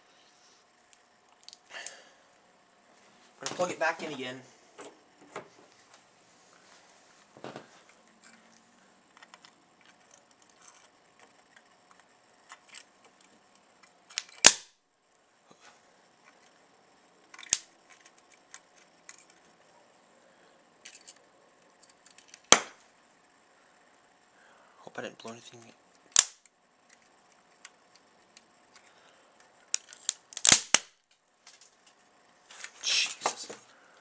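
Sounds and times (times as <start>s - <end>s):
sharp electric snaps: 13.5s - 14.8s, 17.3s - 19.2s, 25.2s - 28.5s, 29.7s - 31.9s.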